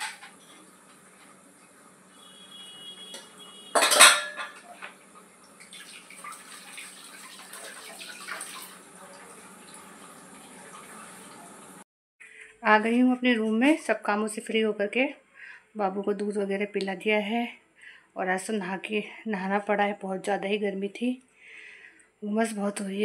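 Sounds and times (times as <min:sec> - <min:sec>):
metal utensils clattering: 0:00.0 - 0:00.5, 0:03.2 - 0:04.9
running tap water: 0:00.0 - 0:11.8.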